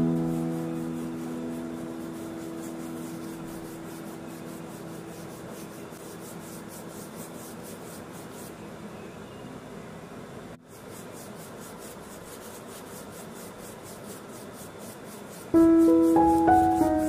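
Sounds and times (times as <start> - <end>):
piano chord ringing: 0.0 - 4.5, 15.6 - 17.0
paintbrush rubbing on paper: 0.0 - 8.7, 10.6 - 17.0.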